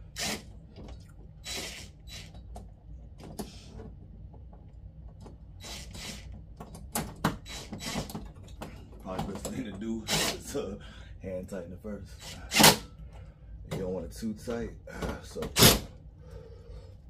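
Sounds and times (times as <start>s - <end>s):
cordless drill driving screw: 0.2s - 0.5s, 1.4s - 2.4s, 5.6s - 6.3s, 7.4s - 8.2s, 10.1s - 10.4s.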